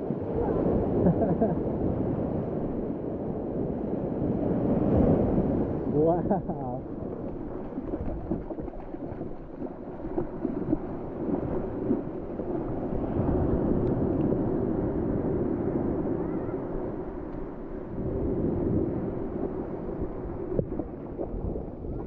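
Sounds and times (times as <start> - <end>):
surf washing over pebbles: 4.2 - 16.2.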